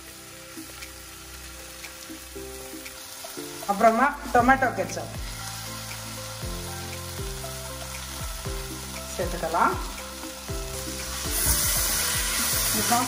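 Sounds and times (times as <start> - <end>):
vegetables sizzling in a pan: 0.0 - 13.0
background music with bass and drums: 4.4 - 13.0.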